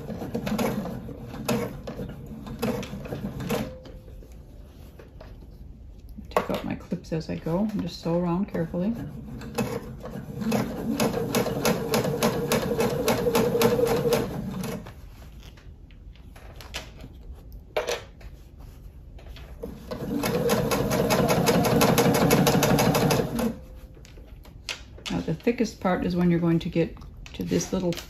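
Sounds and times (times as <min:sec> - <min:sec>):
electric sewing machine stitching: 0:09.2 - 0:14.8, 0:19.7 - 0:23.6.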